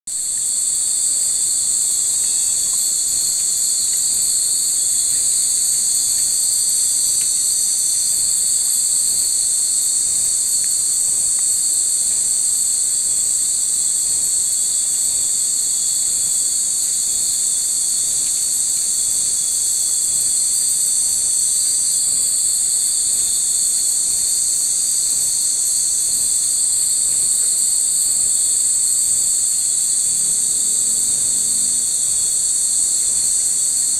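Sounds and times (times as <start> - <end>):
insect chorus shrilling: 0.2 - 10.0.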